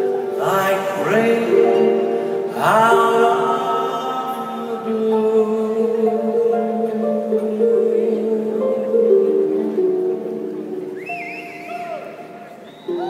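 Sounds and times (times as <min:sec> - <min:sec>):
man singing: 0:00.0 - 0:09.4.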